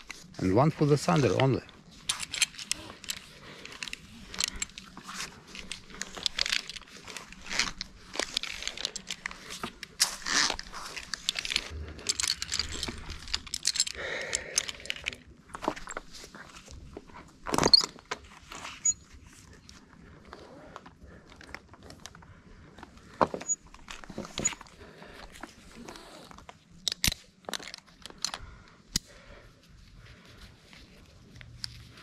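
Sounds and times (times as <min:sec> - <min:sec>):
rope rustling and rubbing: 0:00.0 - 0:14.0, 0:29.5 - 0:32.0
metal hardware clicks: 0:00.8 - 0:16.0, 0:26.8 - 0:29.1.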